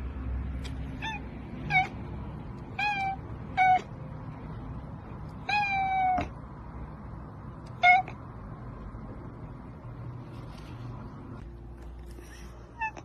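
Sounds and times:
cat meowing: 0:00.9 - 0:02.0, 0:02.6 - 0:04.0, 0:05.4 - 0:06.4, 0:07.7 - 0:08.2, 0:12.7 - 0:13.0.

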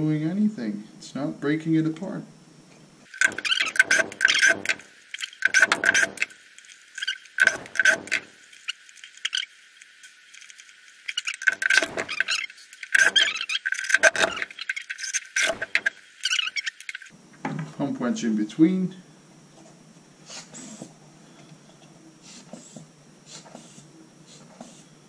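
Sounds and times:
rubber hand pump squeaking: 0:03.1 - 0:06.4, 0:07.0 - 0:09.5, 0:11.1 - 0:17.1.

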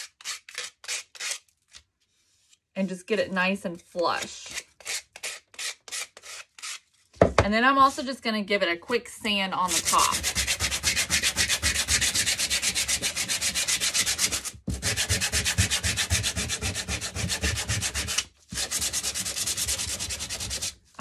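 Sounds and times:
sandpaper scratching on cardboard: 0:04.4 - 0:06.8, 0:09.6 - 0:20.8.

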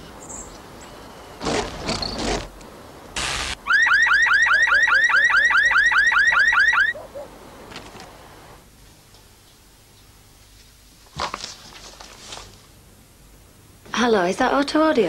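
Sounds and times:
short noise bursts: 0:03.2 - 0:03.8
car alarm whooping: 0:03.6 - 0:07.0.

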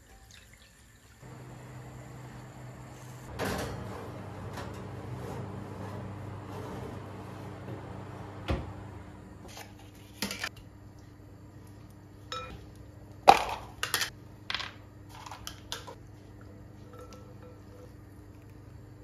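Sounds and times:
utensils clinking against glass bowl: 0:12.3 - 0:12.6.

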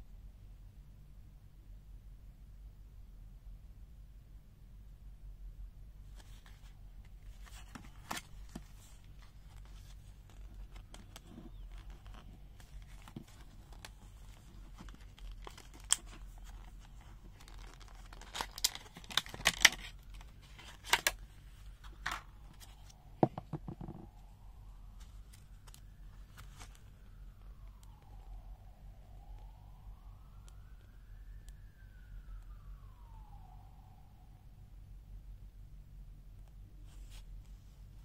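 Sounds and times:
plastic blister crinkling: 0:06.1 - 0:24.2.

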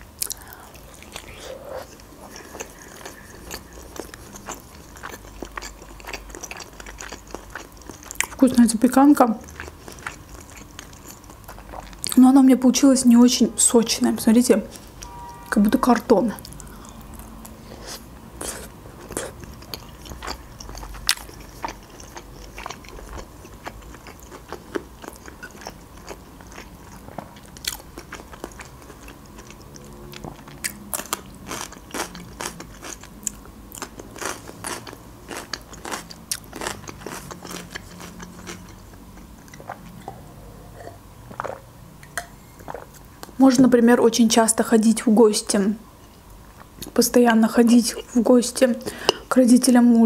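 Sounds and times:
chewing food: 0:00.2 - 0:12.2, 0:16.4 - 0:43.4.

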